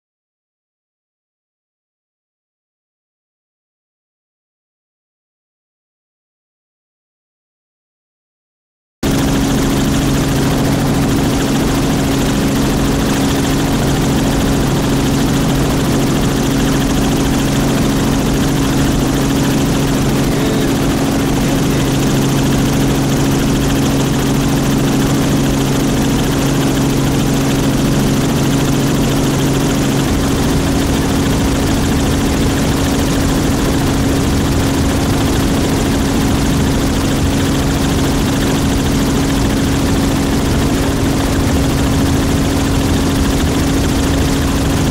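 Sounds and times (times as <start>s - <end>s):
light aircraft engine droning: 9.0s - 44.9s
rushing wind: 9.0s - 44.9s.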